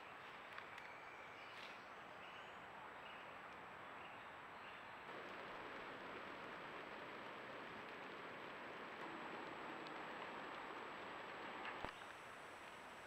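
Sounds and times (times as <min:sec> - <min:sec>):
background hiss: 0:00.0 - 0:13.0
faint high whine: 0:05.0 - 0:13.0.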